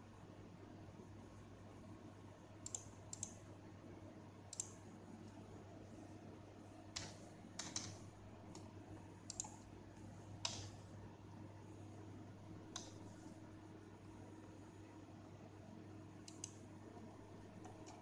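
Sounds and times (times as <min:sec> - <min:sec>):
low electrical hum: 0:00.0 - 0:18.0
computer mouse clicking: 0:02.6 - 0:03.4, 0:04.5 - 0:05.4, 0:06.9 - 0:09.6, 0:10.4 - 0:10.8, 0:12.7 - 0:13.3, 0:16.2 - 0:18.0.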